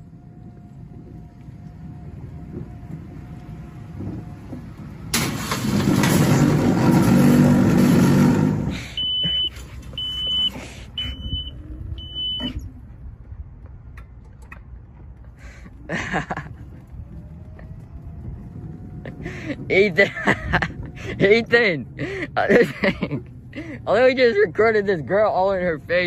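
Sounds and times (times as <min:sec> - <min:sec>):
short high-pitched beeps: 0:09.0 - 0:12.6.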